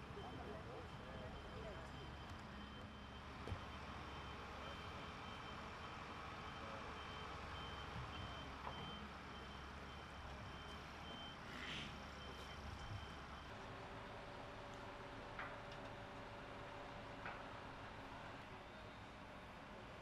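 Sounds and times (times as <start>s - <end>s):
reversing alarm beeping: 0.0s - 13.6s.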